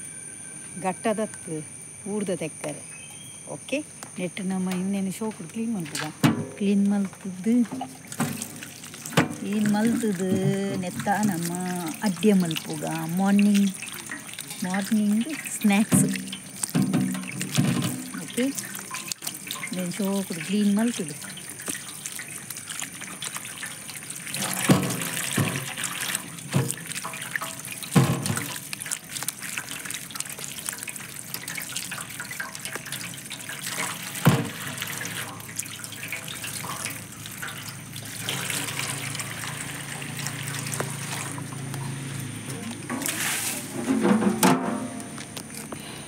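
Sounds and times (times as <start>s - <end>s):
tap water splashing on stone: 5.8s - 41.8s.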